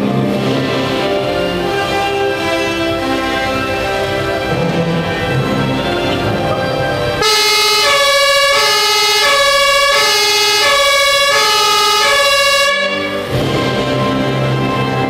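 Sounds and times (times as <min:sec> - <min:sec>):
music: 0:00.0 - 0:15.0
two-tone fire engine siren: 0:02.9 - 0:13.8.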